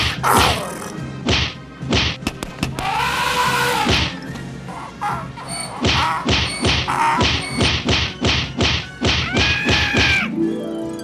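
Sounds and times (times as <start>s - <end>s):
slapstick punch sound effects: 1.2s - 2.8s, 5.8s - 10.2s.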